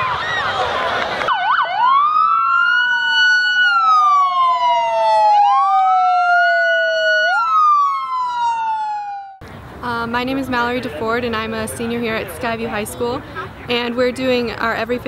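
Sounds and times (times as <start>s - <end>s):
police siren wailing: 1.3s - 9.4s
second siren tone sliding down: 1.3s - 9.4s.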